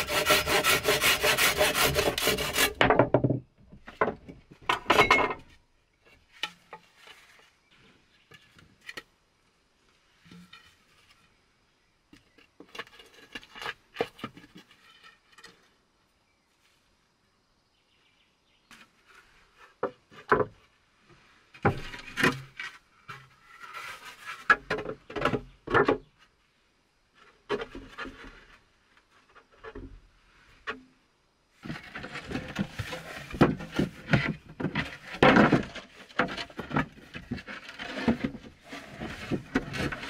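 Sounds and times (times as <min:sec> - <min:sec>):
wooden boards knocking and scraping: 0:00.0 - 0:07.4, 0:12.1 - 0:15.6, 0:18.7 - 0:20.7, 0:21.5 - 0:26.2, 0:27.3 - 0:30.0, 0:31.6 - 0:40.0.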